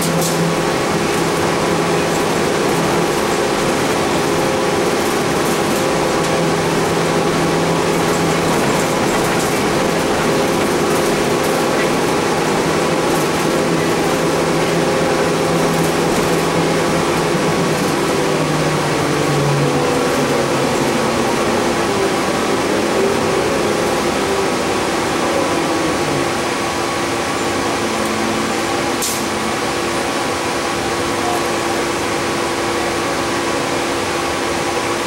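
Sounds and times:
bus interior engine drone: 0.0s - 35.0s.

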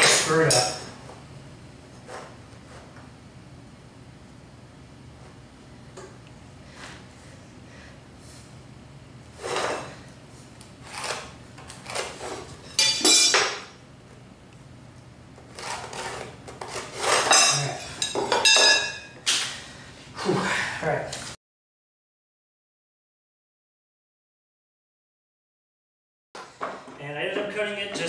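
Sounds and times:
metal tool scraping on plywood: 9.4s - 10.0s.

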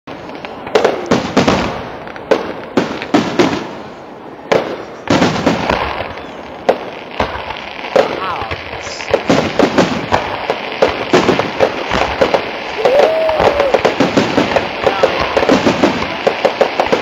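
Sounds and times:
firework shells bursting: 4.5s - 17.0s.

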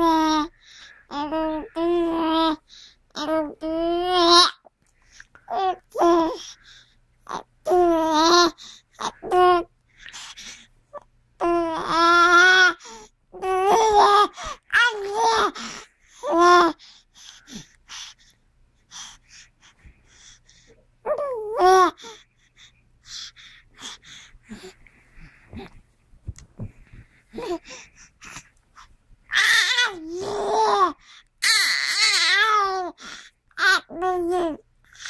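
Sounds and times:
baby babbling: 0.0s - 0.5s, 1.1s - 2.6s, 3.2s - 4.7s, 7.3s - 9.7s, 11.0s - 12.8s, 13.4s - 16.8s, 21.1s - 22.2s, 29.3s - 35.0s
soft breaths and mouth sounds: 4.5s - 31.4s.

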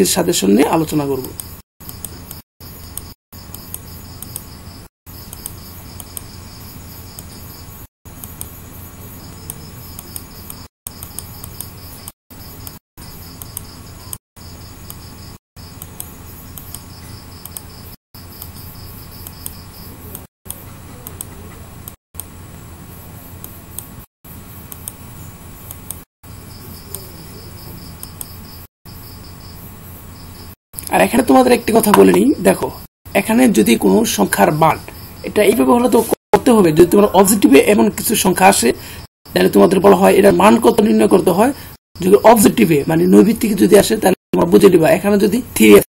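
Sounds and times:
high pulsing insect chirp: 0.6s - 20.2s, 24.4s - 45.8s
faint ticks: 5.3s - 6.3s, 13.4s - 14.2s.

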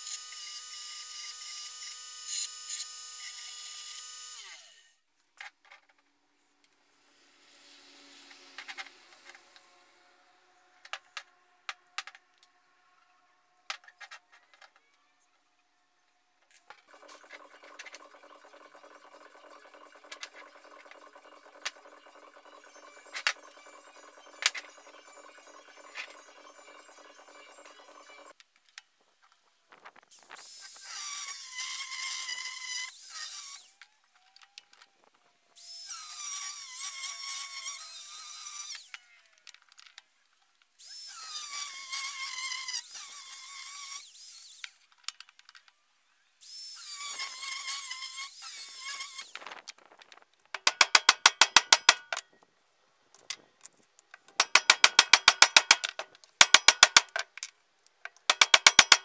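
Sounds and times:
angle grinder cutting steel pipe: 54.4s - 57.3s, 58.2s - 59.0s.

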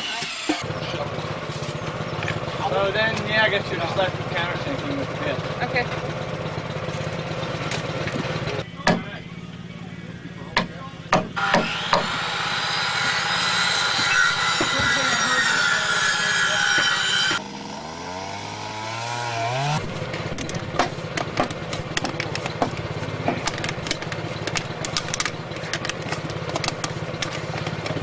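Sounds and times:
small engine pulsing drone: 0.0s - 21.1s
sharp clicks and knocks: 20.1s - 28.0s.

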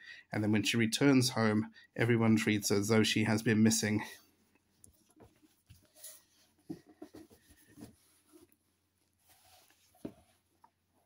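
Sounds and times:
handling of a book: 4.6s - 11.0s.

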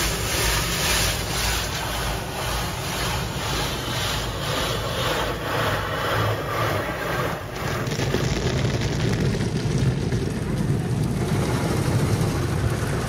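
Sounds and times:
brush strips sweeping windshield: 0.0s - 7.8s
water spraying onto car: 0.0s - 13.0s.

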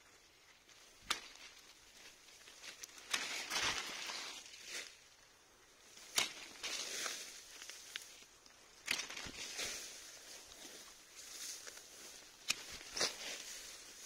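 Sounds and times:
leaves and branches rustling: 0.0s - 14.0s
pruning shears snipping: 0.8s - 1.8s, 2.4s - 4.6s, 6.0s - 10.6s, 11.5s - 14.0s.

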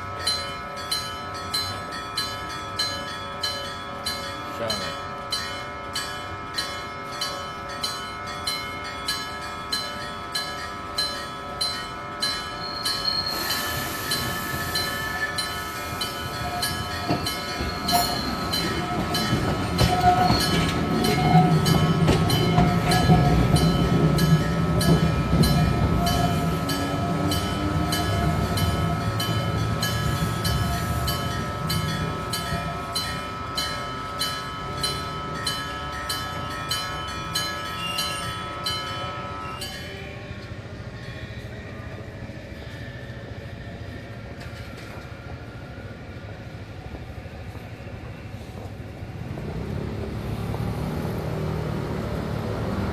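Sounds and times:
level crossing bell clanging: 0.0s - 40.4s
tram motor and wheel noise: 0.0s - 52.9s.

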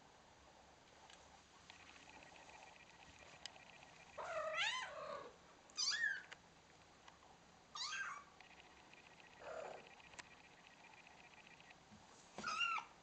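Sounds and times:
cats meowing: 4.2s - 6.3s, 12.4s - 12.9s.

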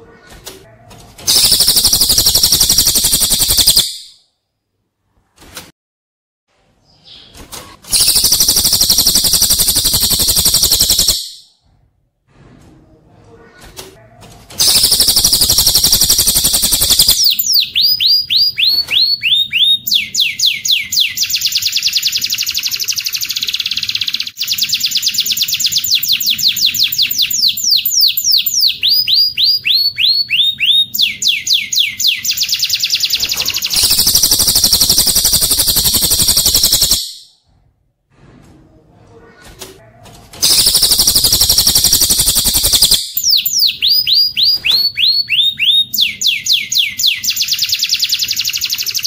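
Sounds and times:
bird trilling and whistling: 1.3s - 4.2s, 7.9s - 11.5s, 14.6s - 37.3s, 40.4s - 49.0s.

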